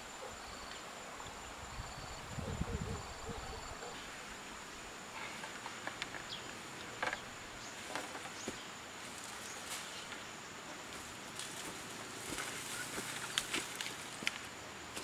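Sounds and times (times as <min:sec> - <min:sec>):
high insect drone: 0:00.0 - 0:15.0
twigs and leaves snapping: 0:11.3 - 0:14.5.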